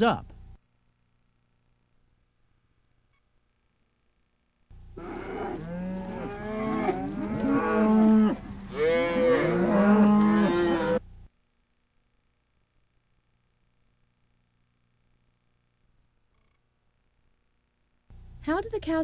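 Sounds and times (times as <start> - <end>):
cows mooing: 5.0 - 11.0.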